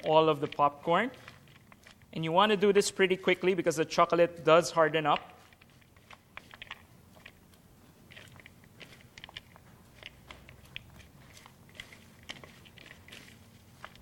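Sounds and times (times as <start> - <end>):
spatula stirring coated popcorn: 8.0 - 14.0.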